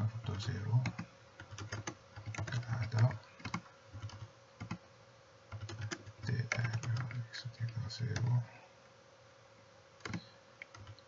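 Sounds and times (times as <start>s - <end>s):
typing on computer keyboard: 0.8s - 4.8s, 5.5s - 7.2s, 8.1s - 8.4s, 10.0s - 11.0s.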